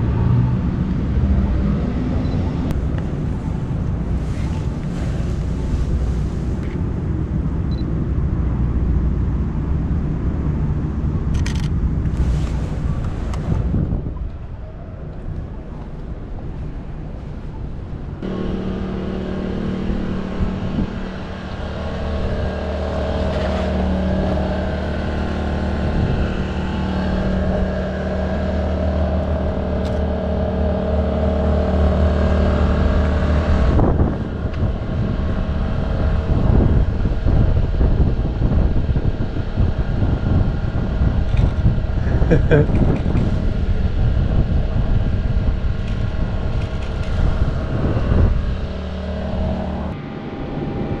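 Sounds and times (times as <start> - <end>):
rough rumbling noise: 0.0 - 51.0
engine idling: 15.0 - 51.0.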